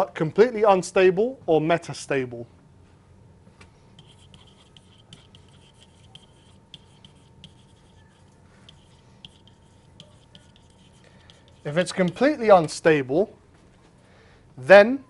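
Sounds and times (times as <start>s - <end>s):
low steady hum: 0.0s - 15.0s
stylus scratching on tablet: 4.0s - 12.9s.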